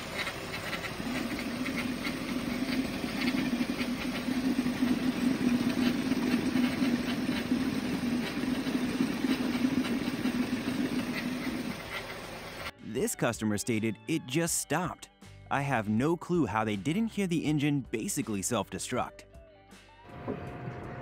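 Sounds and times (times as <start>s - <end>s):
car engine idling: 0.0s - 12.7s.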